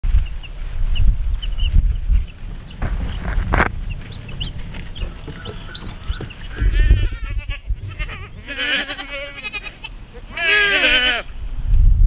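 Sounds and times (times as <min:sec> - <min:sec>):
baby chicks peeping: 0:00.1 - 0:08.8
goats bleating: 0:05.0 - 0:11.3.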